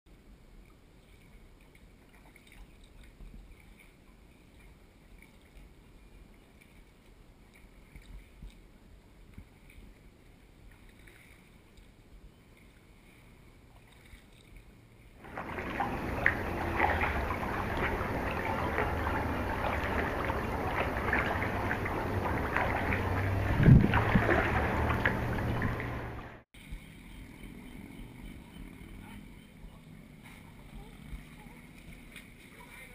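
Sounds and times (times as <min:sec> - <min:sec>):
water lapping around pier pilings: 0:00.1 - 0:32.9
small crackling splashes: 0:00.6 - 0:26.4.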